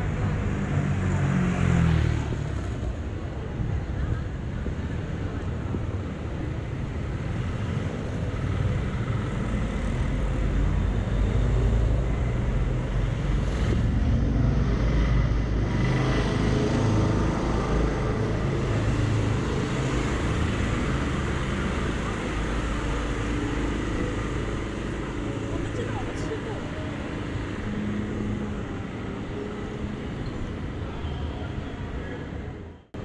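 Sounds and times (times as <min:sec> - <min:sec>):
cars driving past: 0:07.1 - 0:33.0.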